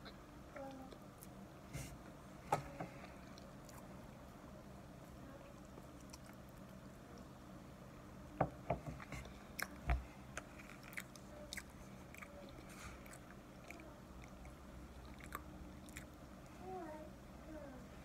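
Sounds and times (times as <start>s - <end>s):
chewing and crunching cornstarch: 5.1s - 7.3s, 9.1s - 16.2s.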